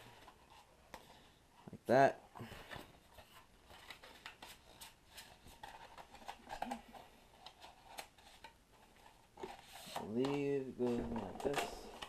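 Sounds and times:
plastic shims rustling and clicking: 2.8 - 12.0.

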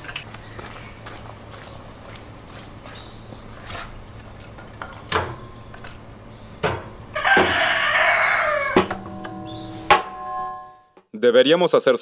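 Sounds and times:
rooster crowing: 7.1 - 9.0.

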